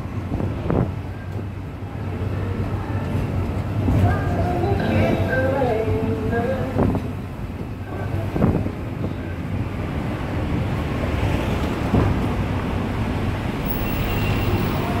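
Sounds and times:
wind buffeting microphone: 0.0 - 13.0
tyres on road: 0.0 - 15.0.

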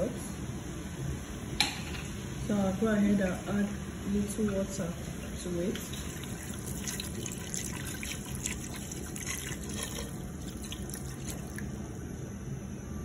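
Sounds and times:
water pouring into a pot: 5.6 - 11.7.

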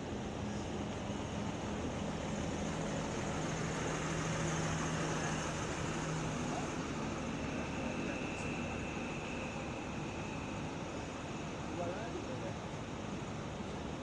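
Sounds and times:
diesel bus engine drone: 0.0 - 14.0.

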